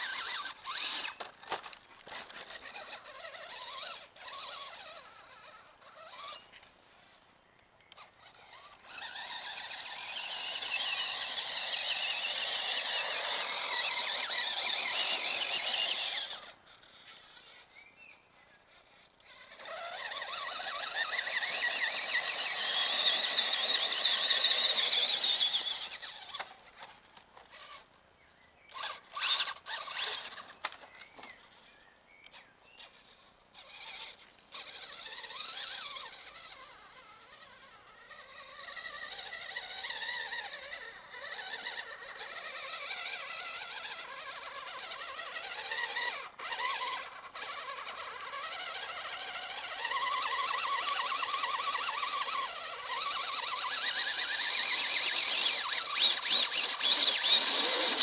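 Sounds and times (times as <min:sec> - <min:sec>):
toy truck electric motor whining: 0:00.0 - 0:28.0, 0:28.7 - 0:58.0.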